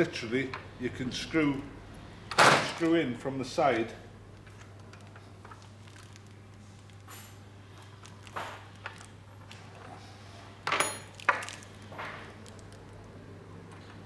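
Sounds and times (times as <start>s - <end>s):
metal parts clinking on door rail: 10.7s - 11.5s.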